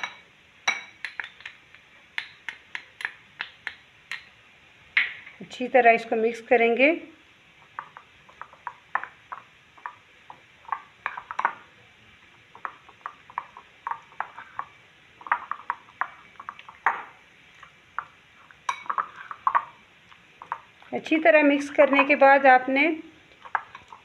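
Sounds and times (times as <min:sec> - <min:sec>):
metal spoon clinking against bowl: 0:00.0 - 0:01.6, 0:18.7 - 0:19.7.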